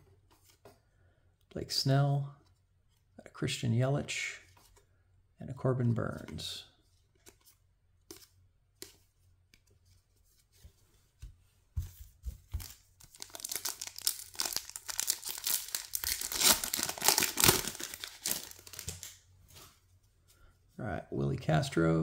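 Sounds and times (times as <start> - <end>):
foil wrapper crinkling and tearing: 13.1 - 19.2.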